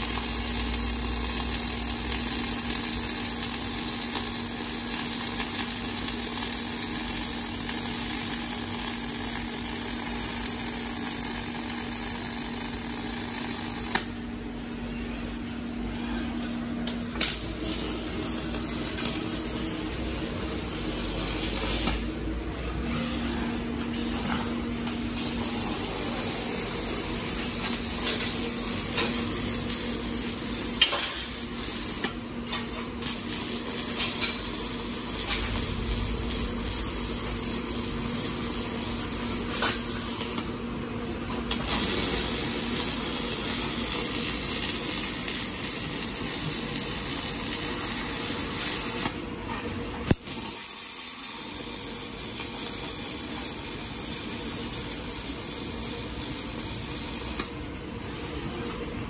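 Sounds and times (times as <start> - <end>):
welding torch crackling hiss: 0.0 - 14.3, 16.9 - 22.4, 24.9 - 40.6, 41.2 - 49.4, 50.0 - 57.7
low hum: 35.1 - 39.3.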